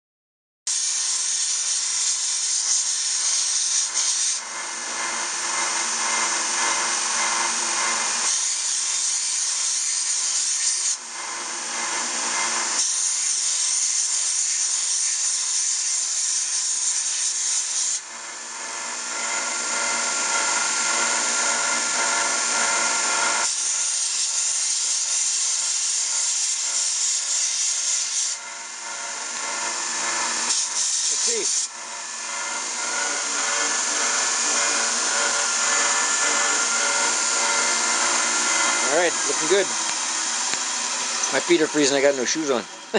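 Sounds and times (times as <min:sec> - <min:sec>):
belt sander running: 0:01.8 - 0:14.4, 0:18.0 - 0:42.9
ivory grinding on belt: 0:16.4 - 0:42.9.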